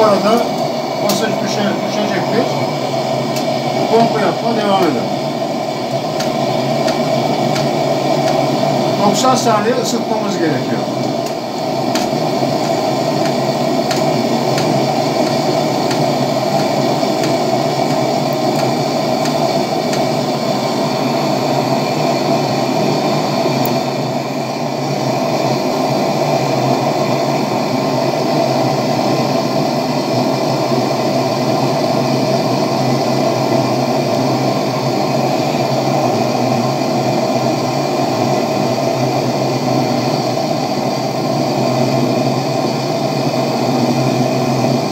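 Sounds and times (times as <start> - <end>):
lantern burner hissing: 0.0 - 44.9.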